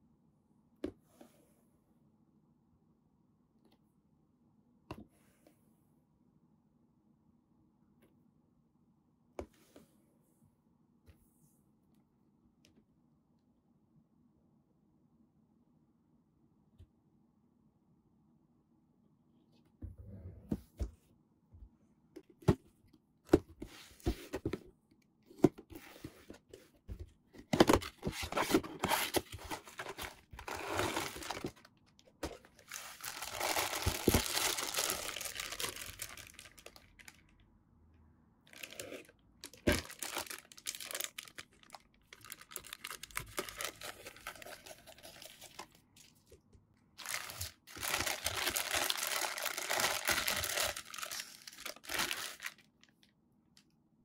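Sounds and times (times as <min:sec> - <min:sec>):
plastic bag crinkling: 0:32.3 - 0:37.2, 0:38.5 - 0:45.8, 0:47.0 - 0:52.9.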